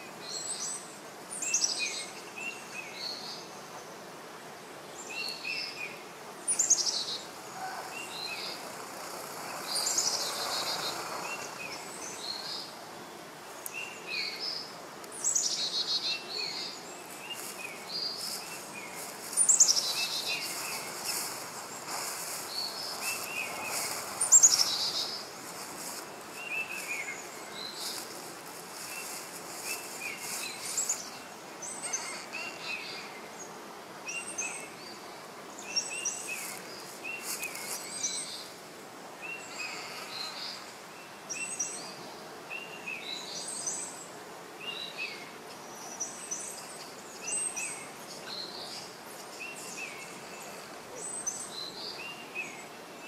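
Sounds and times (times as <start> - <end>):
background hiss: 0.0 - 53.0
birds chirping: 5.0 - 38.6.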